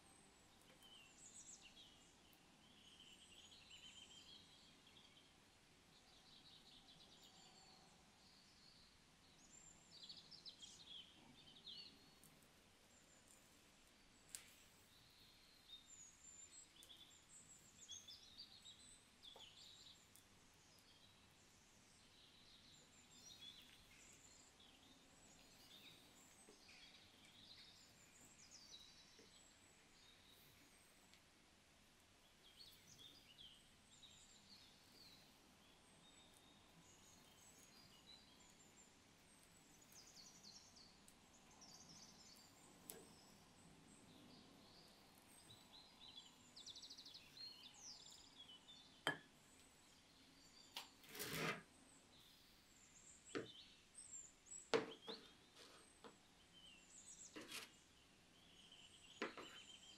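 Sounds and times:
faint high bird chirping: 0:14.1 - 0:31.2, 0:32.2 - 0:59.9.

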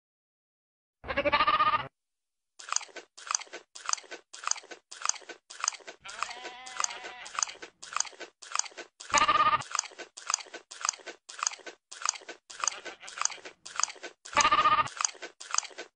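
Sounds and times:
goat bleating: 0:01.0 - 0:01.9, 0:06.0 - 0:07.6, 0:09.1 - 0:09.7, 0:12.5 - 0:13.5, 0:14.4 - 0:15.0
goat chewing crunchy food: 0:02.6 - 0:15.9.

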